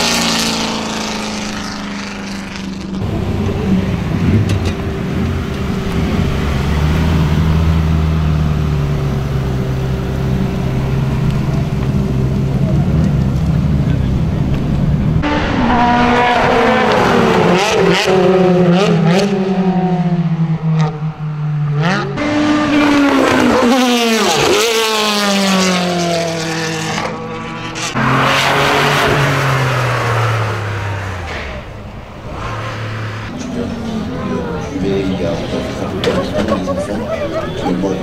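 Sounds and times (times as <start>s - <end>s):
racing car engines revving: 0.0s - 38.0s
car passing at speed: 15.0s - 38.0s.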